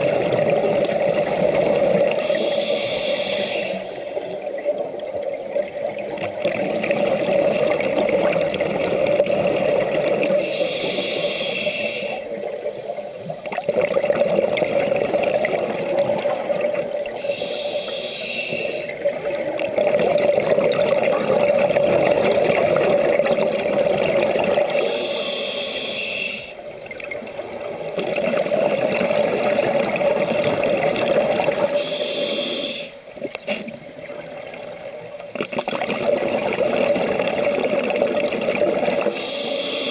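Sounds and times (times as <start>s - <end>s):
bubbling exhaled air underwater: 0.0s - 39.9s
high hiss of inhaled breath: 2.2s - 4.2s, 10.4s - 12.3s, 17.2s - 19.0s, 24.7s - 26.6s, 28.2s - 29.5s, 31.7s - 33.1s, 39.1s - 39.9s.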